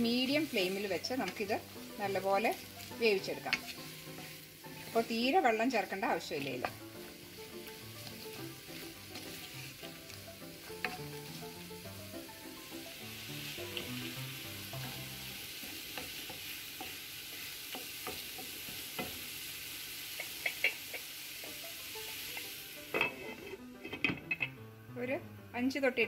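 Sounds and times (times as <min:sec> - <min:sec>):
vegetables sizzling in a pan: 0:00.0 - 0:26.0
spatula clicking on pan: 0:17.7 - 0:19.2, 0:20.2 - 0:21.1.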